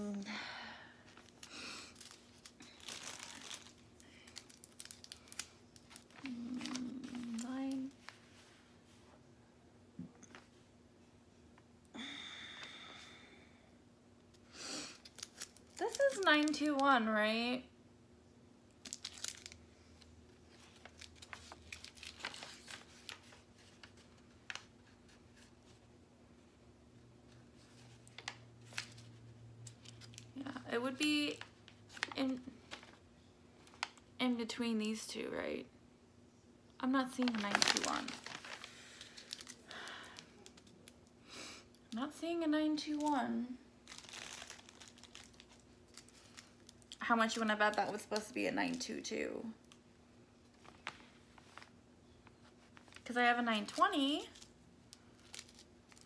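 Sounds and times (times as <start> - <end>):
plastic bags crinkling: 1.0 - 8.2, 14.9 - 16.9, 18.8 - 19.6, 20.3 - 24.8, 27.6 - 33.0, 37.0 - 41.1, 43.8 - 49.8, 52.5 - 56.0.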